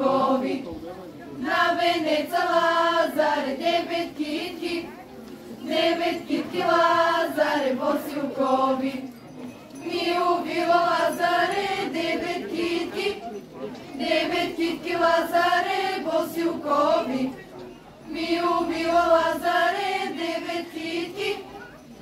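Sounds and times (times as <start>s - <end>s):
girls singing in unison: 0.0s - 0.7s, 1.4s - 4.9s, 5.6s - 9.1s, 9.8s - 13.2s, 14.0s - 17.3s, 18.1s - 21.6s.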